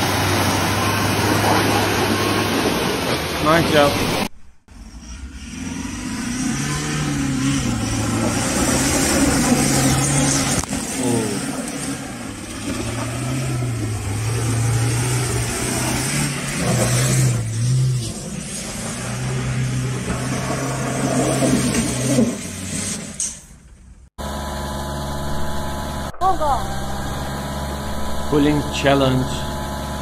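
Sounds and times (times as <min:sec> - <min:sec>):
truck engine revving: 0:00.0 - 0:30.0
tyres tearing through grass and dirt: 0:05.9 - 0:23.2.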